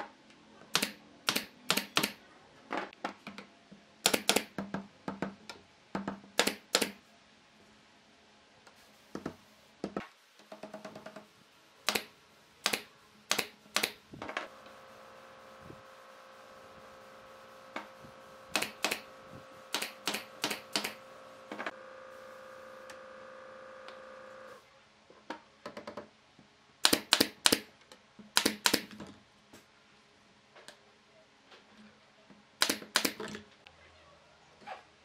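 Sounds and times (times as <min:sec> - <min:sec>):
nail gun firing: 0:00.8 - 0:02.2, 0:04.0 - 0:04.6, 0:06.4 - 0:07.0, 0:11.9 - 0:14.0, 0:18.5 - 0:19.0, 0:19.7 - 0:21.0, 0:26.8 - 0:27.7, 0:28.4 - 0:28.9, 0:32.6 - 0:33.2
steady hum: 0:14.2 - 0:24.6.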